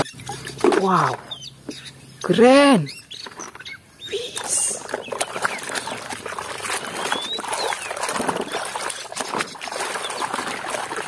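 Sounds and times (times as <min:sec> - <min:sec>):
water splashing in plastic basin: 0:04.4 - 0:11.0.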